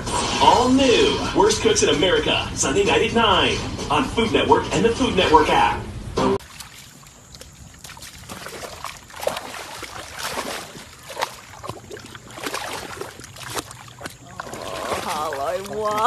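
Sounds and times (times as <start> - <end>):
dog splashing through puddle: 6.4 - 16.0.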